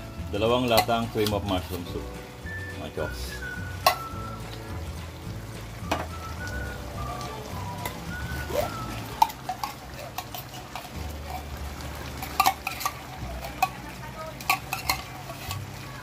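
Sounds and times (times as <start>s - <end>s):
spoon clinking against can: 3.8s - 4.2s, 9.1s - 11.5s, 12.2s - 13.8s, 14.4s - 15.7s
metal spoon scraping tin can: 9.1s - 11.5s, 12.2s - 13.8s, 14.4s - 15.7s.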